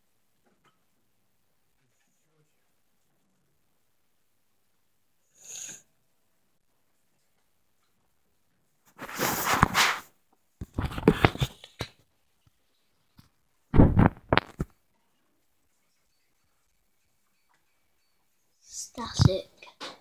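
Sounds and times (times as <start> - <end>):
handling noise on microphone: 8.9 - 11.6, 13.8 - 14.8.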